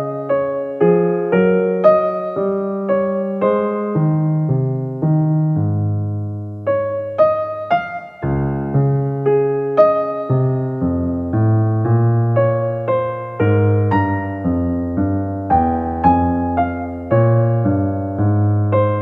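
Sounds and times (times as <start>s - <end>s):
electric piano melody: 0.0s - 19.0s.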